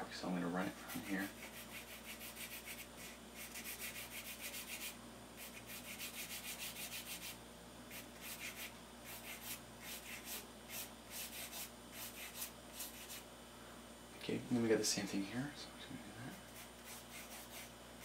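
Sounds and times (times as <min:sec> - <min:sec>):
pencil scratching on paper: 0:00.9 - 0:13.2, 0:16.6 - 0:17.7.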